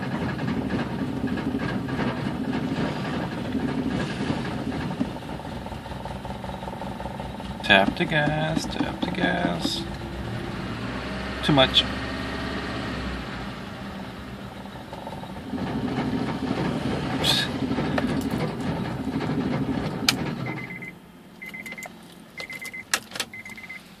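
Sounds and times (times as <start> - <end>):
car engine idling: 0.0 - 24.0
warning chime beeping: 20.4 - 23.8.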